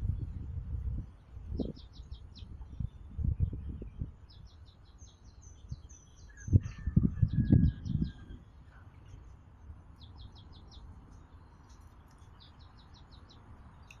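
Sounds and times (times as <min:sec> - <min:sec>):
small bird chirping: 0:01.0 - 0:14.0.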